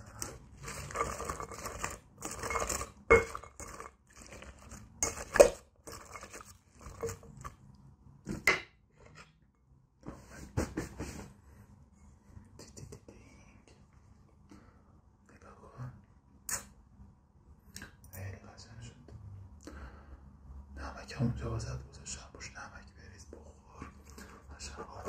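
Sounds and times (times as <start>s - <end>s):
wet rustling and scraping: 0.0s - 7.7s
clinks against glass bowl: 2.4s - 3.8s.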